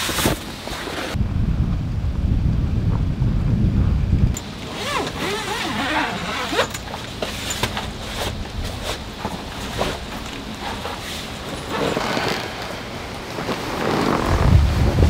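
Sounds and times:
tent canvas rustling: 0.0s - 1.2s, 4.4s - 15.0s
wind rumbling on microphone: 0.0s - 15.0s.

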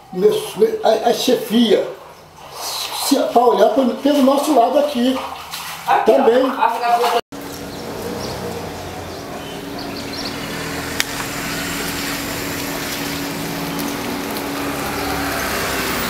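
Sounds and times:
street noise: 7.3s - 16.0s
engine hum: 7.4s - 16.0s.

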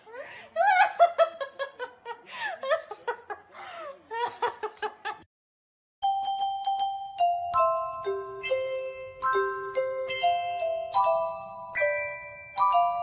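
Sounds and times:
woman laughing and squealing: 0.0s - 1.7s
chiming glockenspiel melody: 6.0s - 13.0s.

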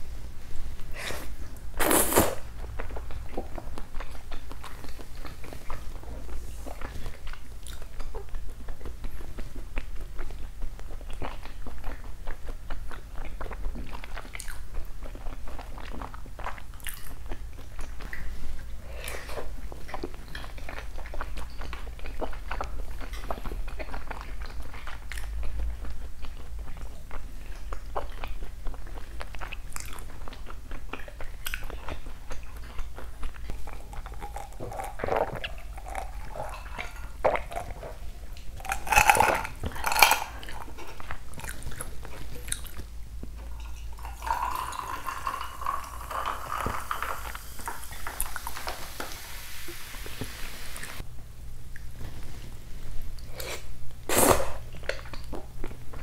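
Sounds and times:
chewing raw meat: 2.4s - 48.7s
wet mouth clicks: 33.3s - 40.8s
drink poured into a glass: 44.0s - 49.2s.

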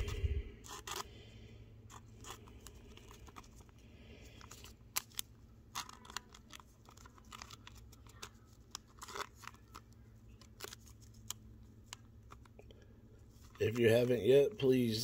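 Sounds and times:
trading card clicks and rustles: 0.0s - 1.1s, 1.8s - 15.0s
low steady hum: 0.0s - 15.0s.

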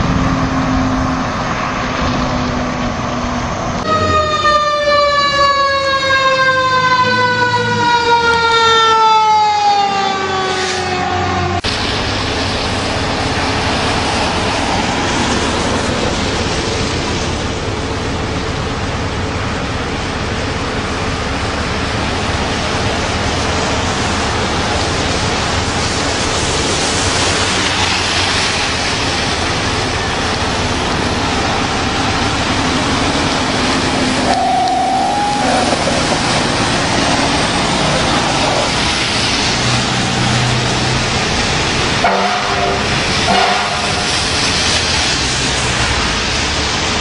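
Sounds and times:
passing road vehicles rushing: 0.0s - 47.0s
horn-like tone: 34.2s - 35.8s, 42.0s - 44.1s
short pitched tone: 34.2s - 36.0s.

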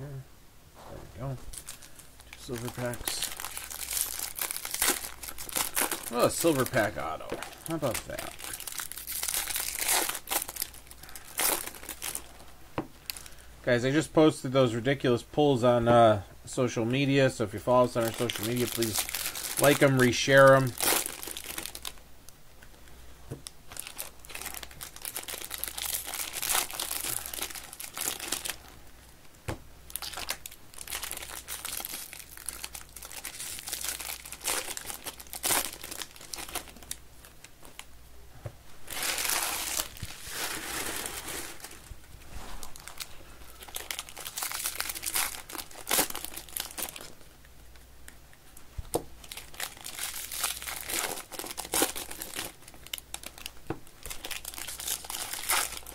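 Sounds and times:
foil wrappers crinkling: 1.5s - 13.4s, 17.8s - 22.0s, 23.7s - 28.8s, 29.9s - 37.9s, 38.8s - 47.3s, 49.2s - 55.9s.

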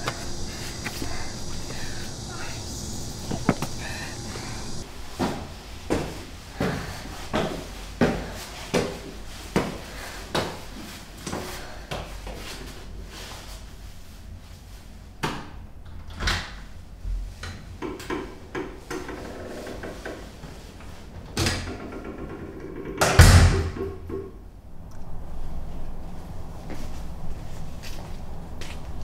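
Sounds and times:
faint tones: 0.0s - 4.8s
footsteps: 0.0s - 4.8s, 26.0s - 29.0s
heavy door slamming shut: 23.0s - 24.0s.

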